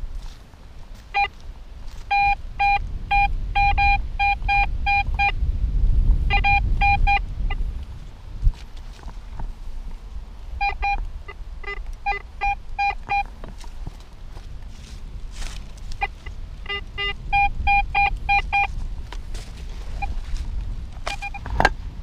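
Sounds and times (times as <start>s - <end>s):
wind rumbling on microphone: 0.0s - 22.0s
metal detector beeps: 1.1s - 1.4s, 2.1s - 5.4s, 6.3s - 7.6s, 10.6s - 13.3s, 15.9s - 18.8s, 19.9s - 20.3s, 21.0s - 21.5s.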